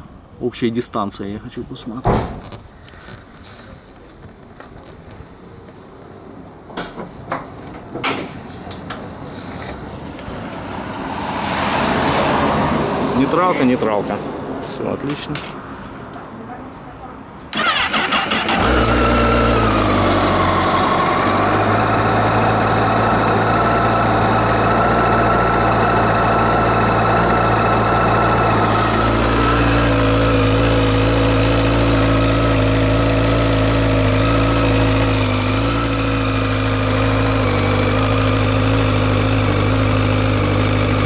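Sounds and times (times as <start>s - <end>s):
motorcycle engine idling: 17.6s - 41.0s.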